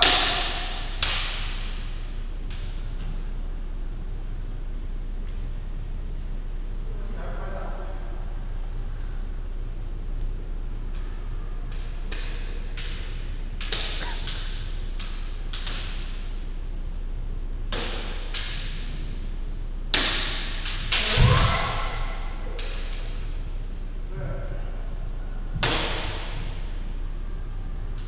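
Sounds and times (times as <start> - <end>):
bamboo swords clacking: 0.0 - 2.8, 11.7 - 16.4, 17.7 - 19.1, 19.9 - 23.5, 25.6 - 26.8.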